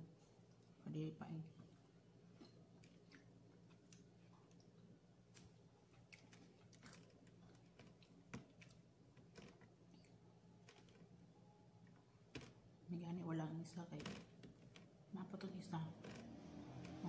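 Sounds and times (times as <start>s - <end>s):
low steady hum: 0.0s - 17.0s
person chewing fish: 2.4s - 11.1s.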